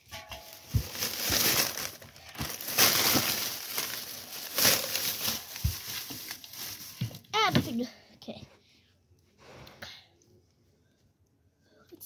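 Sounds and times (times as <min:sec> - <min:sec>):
plastic bag crinkling: 0:00.4 - 0:07.3.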